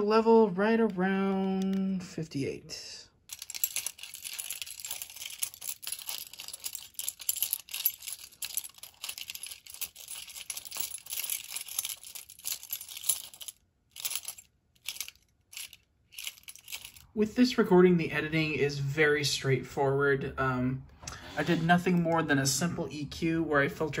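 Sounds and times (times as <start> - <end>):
car keys jingling: 3.3 - 17.0.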